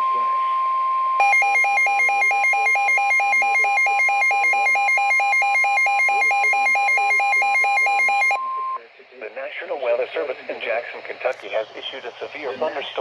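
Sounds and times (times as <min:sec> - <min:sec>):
rapid alternating alert beeps: 0:01.2 - 0:08.8
steady warning alarm tone: 0:01.2 - 0:08.8.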